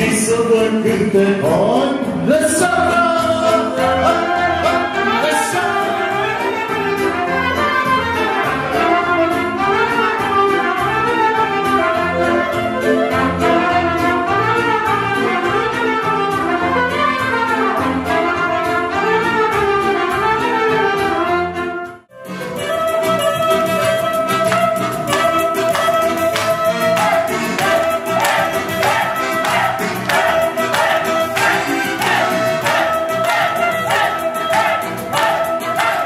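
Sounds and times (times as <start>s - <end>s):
live band playing dance tune: 1.0s - 21.4s, 22.0s - 36.0s.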